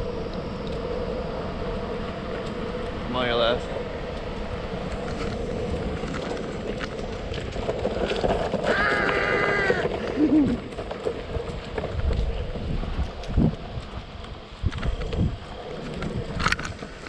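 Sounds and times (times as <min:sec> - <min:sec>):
steady hum: 0:00.0 - 0:08.1
board wheels rolling on pavement: 0:00.0 - 0:17.0
wind buffeting microphone: 0:00.0 - 0:17.0
person shouting: 0:08.7 - 0:09.9.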